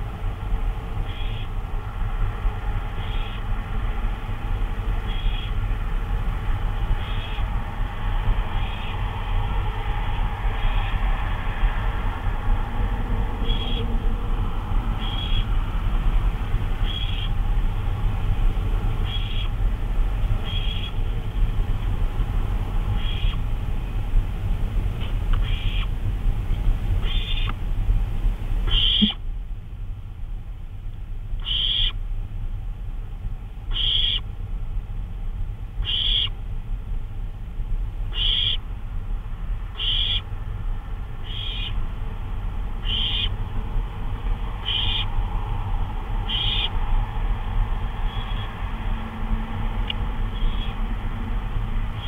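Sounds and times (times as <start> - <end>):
low electrical hum: 0.0 - 52.0
owl hissing snore calls: 23.0 - 23.4, 25.4 - 25.9, 27.0 - 27.5, 28.7 - 29.2, 31.4 - 32.0, 33.7 - 34.2, 35.8 - 36.3, 38.1 - 38.6, 39.7 - 40.2, 41.2 - 41.8, 42.8 - 43.4, 44.6 - 45.1, 46.2 - 46.8.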